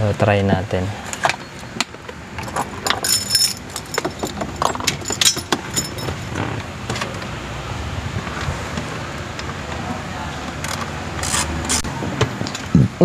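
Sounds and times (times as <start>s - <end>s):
light metallic jingling: 2.4s - 6.5s.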